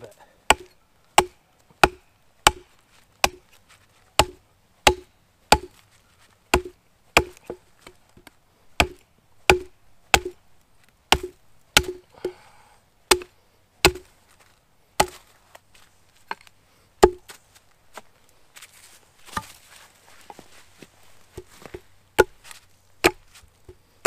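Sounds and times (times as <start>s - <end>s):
hatchet chopping wood: 0.5s - 3.5s, 4.2s - 5.8s, 6.5s - 8.0s, 8.8s - 10.4s, 11.1s - 12.4s, 13.1s - 14.1s, 15.0s - 15.2s, 16.3s - 17.3s, 21.4s - 22.4s, 23.0s - 23.8s.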